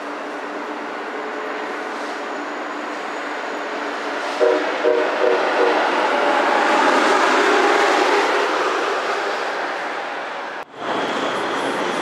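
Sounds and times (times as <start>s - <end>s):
train rushing and clattering: 0.0s - 12.0s
train horn blasts: 4.4s - 5.9s.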